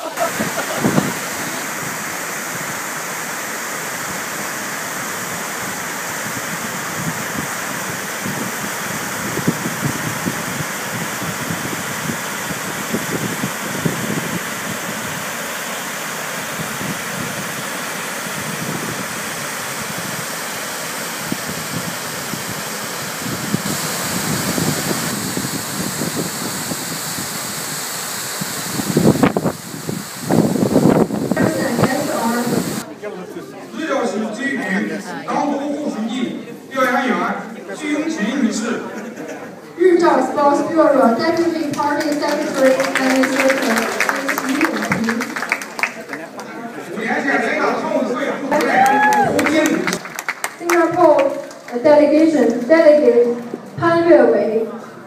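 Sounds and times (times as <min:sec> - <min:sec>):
water sheeting down a dam: 0:00.0 - 0:32.9, 0:40.9 - 0:47.8, 0:48.5 - 0:53.7
waterfall rushing: 0:00.0 - 0:32.9, 0:40.8 - 0:45.8, 0:48.5 - 0:51.8.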